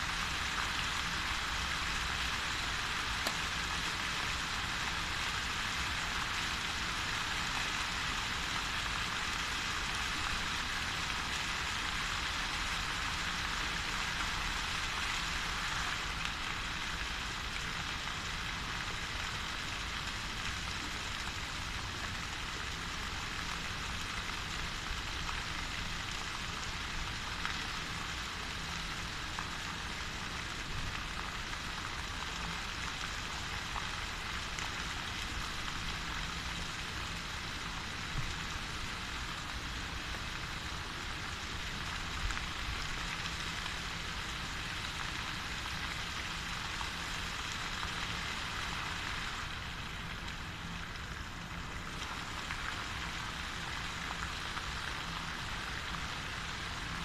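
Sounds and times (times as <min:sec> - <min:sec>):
fountain water splashing: 0:00.0 - 0:57.0.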